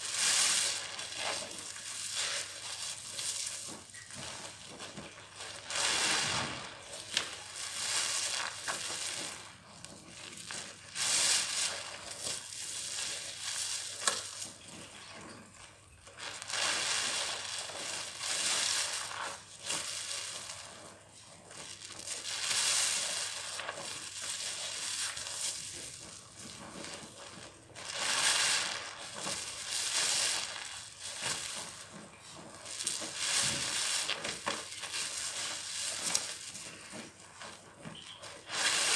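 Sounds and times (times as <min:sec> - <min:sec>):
sponges squelching in suds: 0:21.5 - 0:38.9.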